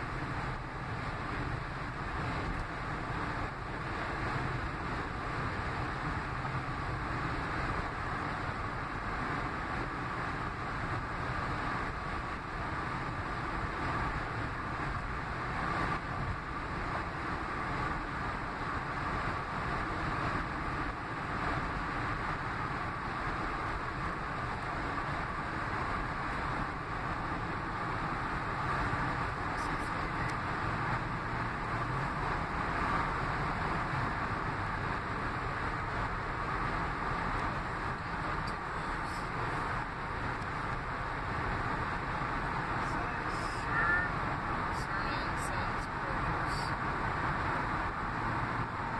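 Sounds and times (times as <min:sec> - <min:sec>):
car road noise inside cabin: 0:00.0 - 0:48.9.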